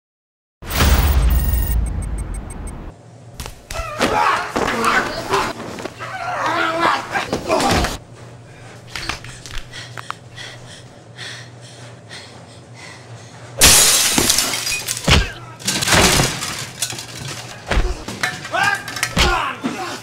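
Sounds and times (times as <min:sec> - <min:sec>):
dishes and glass crashing: 0:13.6 - 0:17.5
kitchenware clattering: 0:13.7 - 0:19.4.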